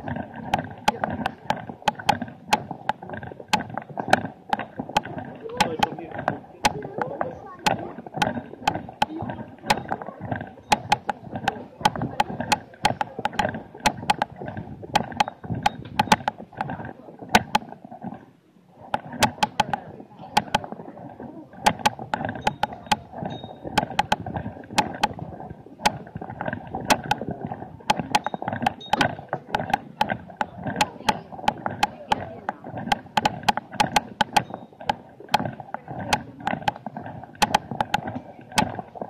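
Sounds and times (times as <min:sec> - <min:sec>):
sharp clicks and taps: 0:00.0 - 0:17.8, 0:18.9 - 0:20.8, 0:21.6 - 0:39.0
crowd chatter: 0:05.2 - 0:14.8, 0:16.4 - 0:23.7, 0:29.2 - 0:37.0, 0:37.6 - 0:39.0.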